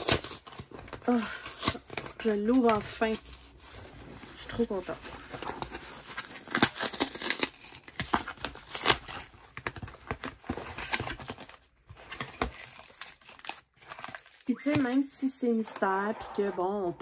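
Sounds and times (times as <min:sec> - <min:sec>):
packing tape ripped off cardboard: 0:00.0 - 0:03.5, 0:05.3 - 0:15.0.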